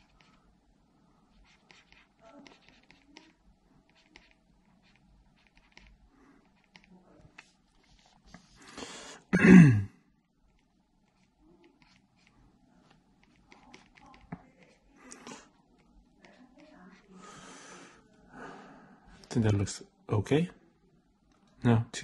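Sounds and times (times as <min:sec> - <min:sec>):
stylus ticks on tablet: 0:01.4 - 0:07.5, 0:10.2 - 0:17.2
noisy breath in: 0:08.5 - 0:09.3, 0:17.1 - 0:19.2.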